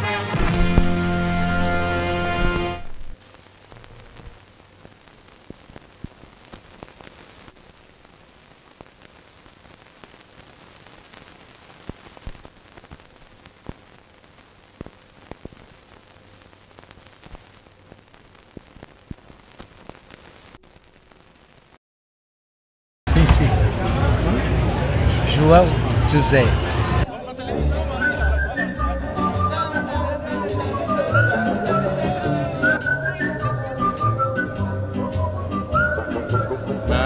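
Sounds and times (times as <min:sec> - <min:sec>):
film crackle hiss: 0:00.0 - 0:21.8
clicks and pops: 0:02.4 - 0:07.7, 0:08.7 - 0:21.7.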